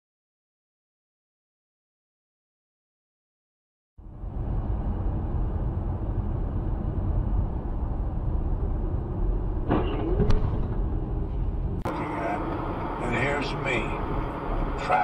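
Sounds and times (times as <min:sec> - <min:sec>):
car road and engine rumble: 0:04.0 - 0:15.0.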